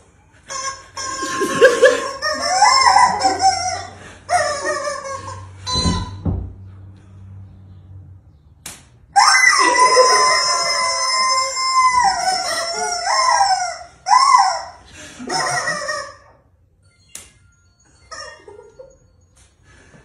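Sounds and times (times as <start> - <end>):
rubber chicken squeak toys screaming: 0.4 - 6.2, 9.1 - 16.5, 18.1 - 18.9.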